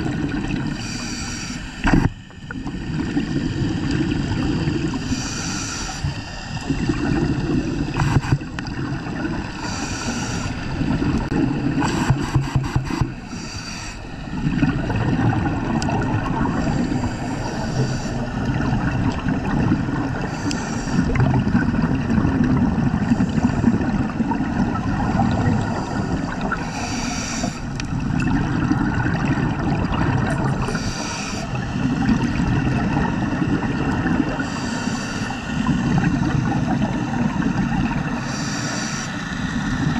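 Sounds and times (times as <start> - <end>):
regulator exhaust bubbles gurgling: 0.0 - 0.8, 1.8 - 5.0, 6.6 - 9.6, 14.3 - 16.8, 21.0 - 26.6, 27.7 - 30.8, 31.5 - 34.5, 35.6 - 38.2
hiss of bubbles: 0.0 - 39.9.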